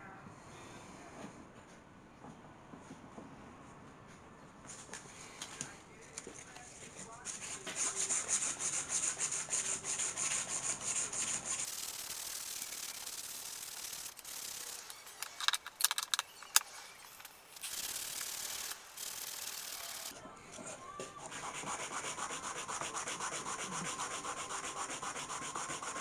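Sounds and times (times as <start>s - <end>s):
sandpaper rasping on metal: 7.3s - 15.4s, 16.2s - 20.1s, 21.3s - 26.0s
sharp clicks: 11.7s - 20.1s.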